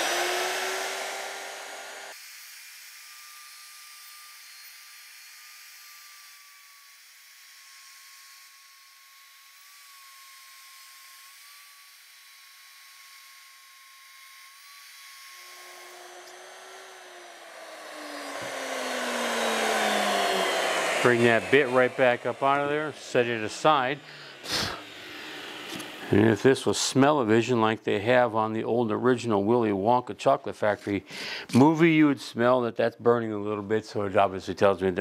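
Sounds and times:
router whining and winding down: 0:00.0 - 0:26.4.

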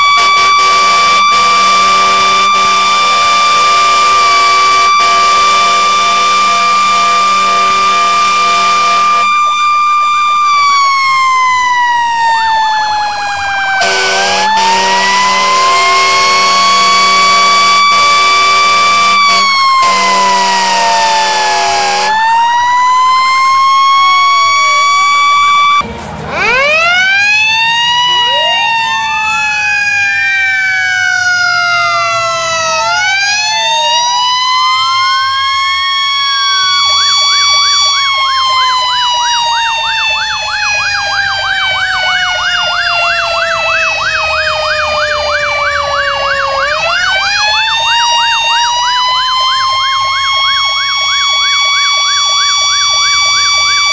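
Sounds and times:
fast yelping siren: 0:00.0 - 0:25.8, 0:26.4 - 0:53.9
sirens wailing: 0:00.0 - 0:53.9
horn blast: 0:00.1 - 0:09.3, 0:13.8 - 0:22.2.

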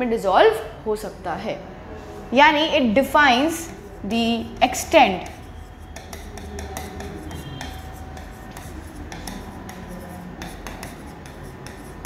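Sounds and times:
stylus tapping on glass screen: 0:05.2 - 0:11.9.

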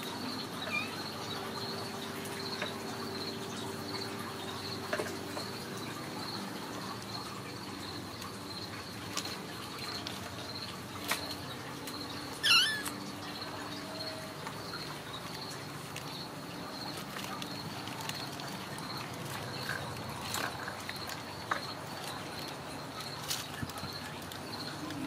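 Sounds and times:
pulsing insect trill: 0:11.9 - 0:17.8
short high-pitched call: 0:12.4 - 0:12.9.

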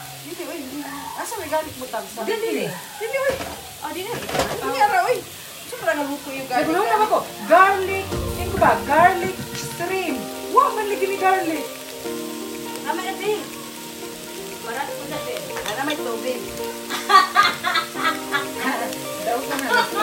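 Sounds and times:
shrimp sizzling in a wok: 0:00.0 - 0:20.0
background music with singing: 0:06.7 - 0:17.1.

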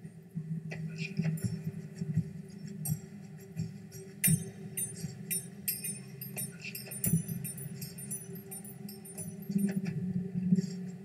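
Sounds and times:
steady low hum: 0:04.2 - 0:09.7
high ringing clinks: 0:04.2 - 0:09.8.

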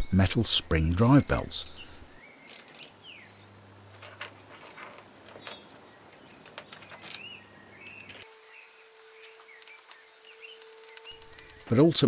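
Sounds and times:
metal parts clicking: 0:02.5 - 0:03.0.

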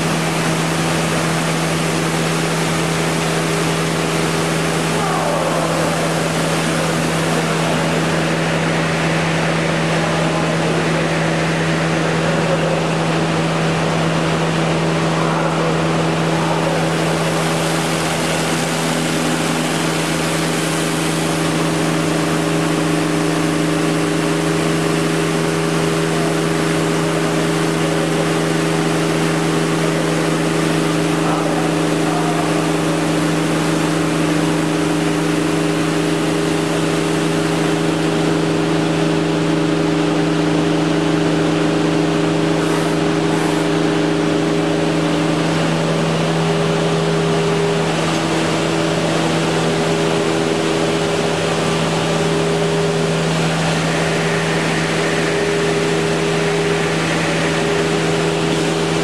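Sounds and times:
machine hum with tones: 0:00.0 - 0:59.0.

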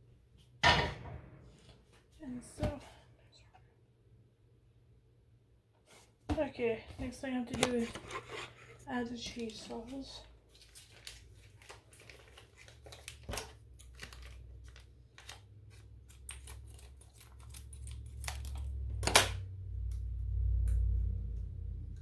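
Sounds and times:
packaging crinkling and tearing: 0:09.2 - 0:19.3
low rumble: 0:19.5 - 0:22.0.

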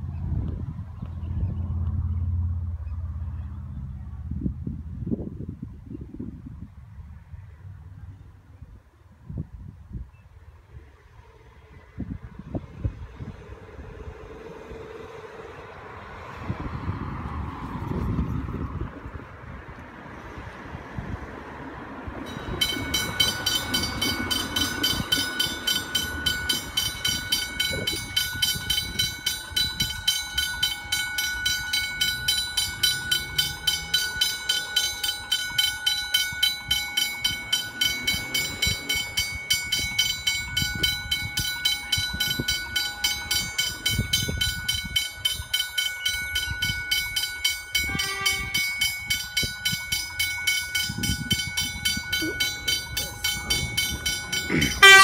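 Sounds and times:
level crossing warning bell: 0:22.0 - 0:55.0.

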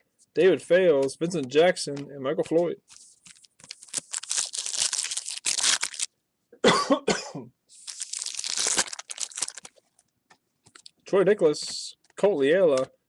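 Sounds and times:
foil wrapper crinkling: 0:02.9 - 0:06.1, 0:07.8 - 0:09.8
person coughing: 0:06.6 - 0:07.5.

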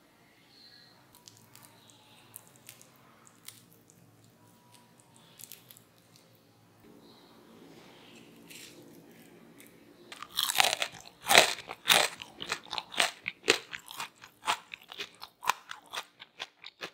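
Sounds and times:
crunchy chewing: 0:01.1 - 0:06.4, 0:08.3 - 0:16.9
crunchy food bitten: 0:09.6 - 0:16.9.

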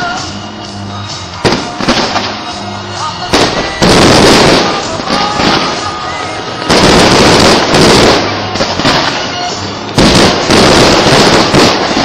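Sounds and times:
fireworks bursting and crackling: 0:01.2 - 0:12.0.

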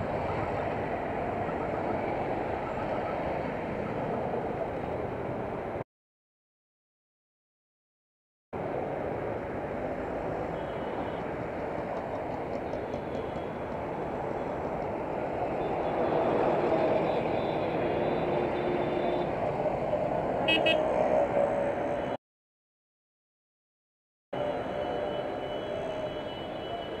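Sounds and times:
dense road traffic: 0:00.0 - 0:05.8, 0:08.6 - 0:22.2, 0:24.3 - 0:27.0
vehicle horns honking: 0:20.5 - 0:20.8.

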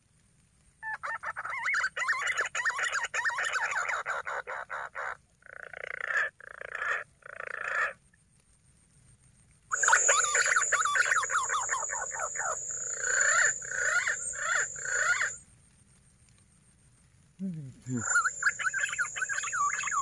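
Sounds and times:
pigeon calls: 0:09.7 - 0:15.4, 0:17.9 - 0:20.0
steady high-pitched tone: 0:09.7 - 0:15.4, 0:17.9 - 0:20.0.

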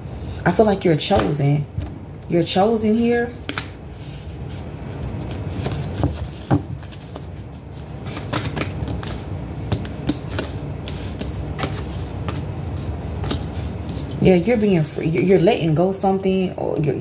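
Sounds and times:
steady low hum: 0:00.0 - 0:17.0
cards being shuffled: 0:03.4 - 0:15.4.

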